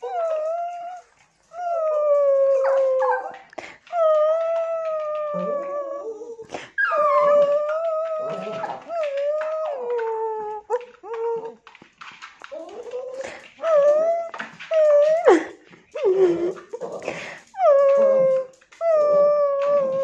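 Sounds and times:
dog howling: 0:00.0 - 0:11.6, 0:12.4 - 0:20.0
dog whining: 0:00.0 - 0:11.7, 0:12.4 - 0:20.0.

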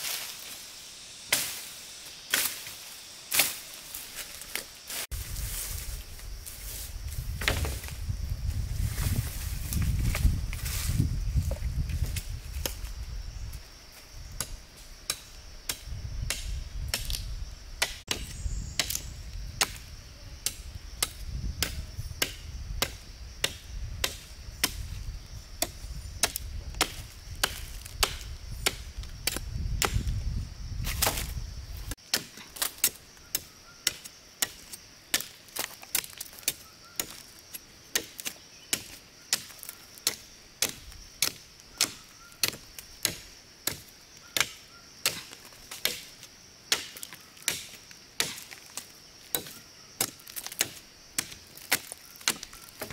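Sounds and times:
wood chopping cracks: 0:17.8 - 0:18.2, 0:26.2 - 0:30.1, 0:30.9 - 0:31.3, 0:32.1 - 0:37.2, 0:37.9 - 0:52.9.

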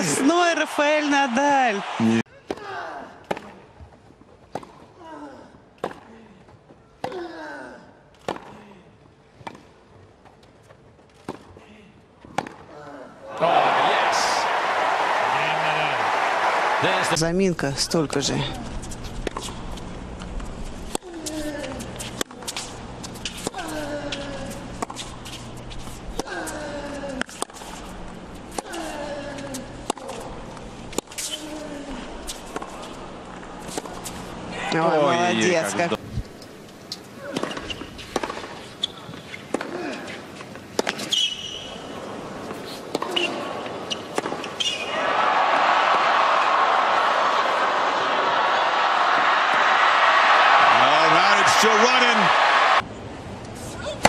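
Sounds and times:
tennis racket hitting ball: 0:37.3 - 0:38.5.

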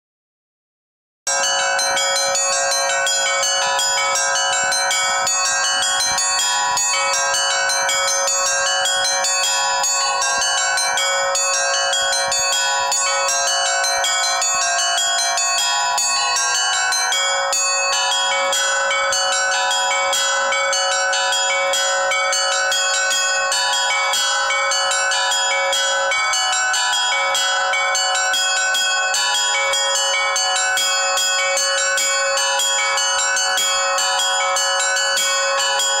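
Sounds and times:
church bells ringing: 0:01.3 - 0:36.0.

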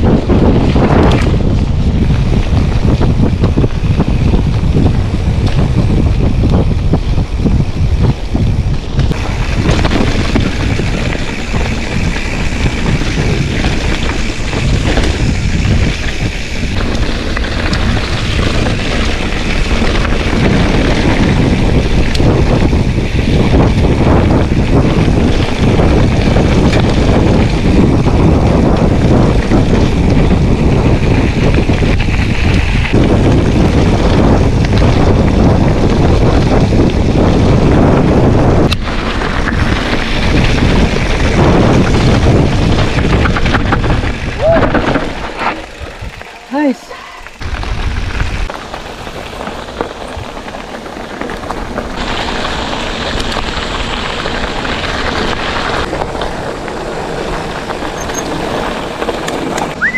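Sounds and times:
bike tyres rumbling on dirt: 0:00.0 - 0:59.9
wind noise on microphone: 0:00.0 - 0:59.9
rattling bike parts: 0:42.2 - 0:52.3.

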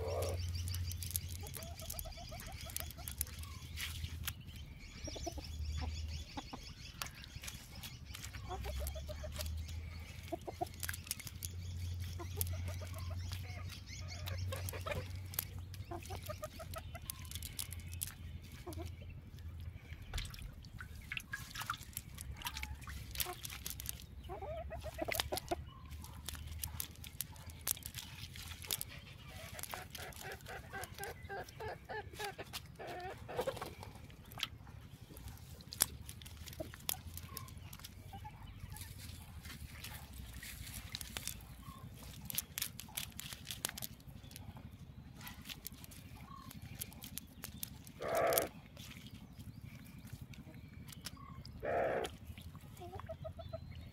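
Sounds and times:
net clicks and rustles: 0:00.0 - 0:04.6, 0:07.0 - 0:18.9, 0:20.2 - 0:24.2, 0:24.8 - 0:31.2, 0:35.1 - 0:38.1, 0:38.8 - 0:44.6, 0:45.2 - 0:48.9
chickens clucking: 0:00.0 - 0:53.9.

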